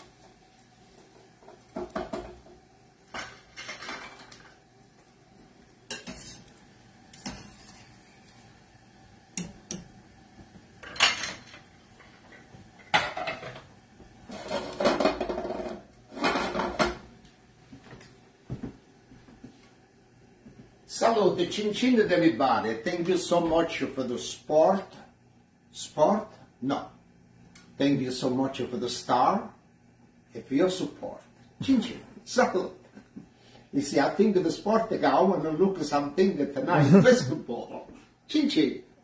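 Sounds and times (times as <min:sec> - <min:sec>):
metal spoon scraping a pot: 0:05.9 - 0:08.4.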